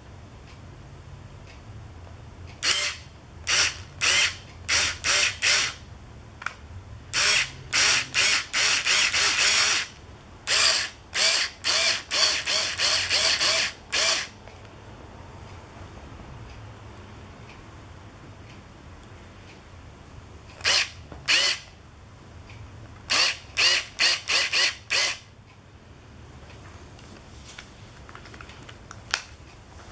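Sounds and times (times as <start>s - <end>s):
cordless drill whirring bursts: 2.6s - 5.8s, 7.2s - 9.9s, 10.5s - 14.3s, 20.6s - 21.6s, 23.1s - 25.2s.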